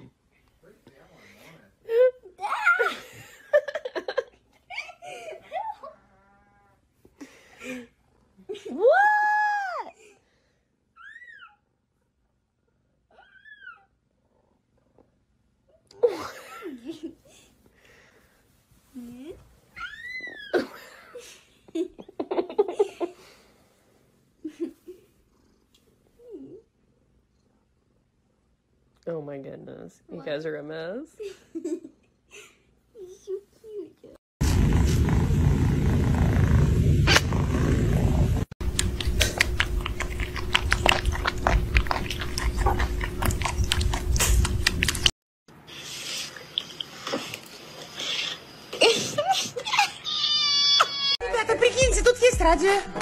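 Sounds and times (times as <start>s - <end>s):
cat purring: 34.4s - 44.8s
low rumble: 34.4s - 45.1s
kittens suckling wet smacking: 38.6s - 45.1s.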